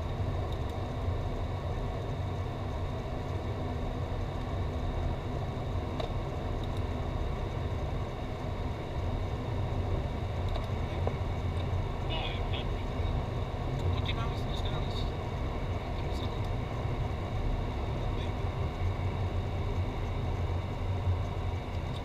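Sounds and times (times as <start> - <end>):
faint high whine: 0.0 - 22.0
jet cockpit engine rumble: 0.0 - 22.0.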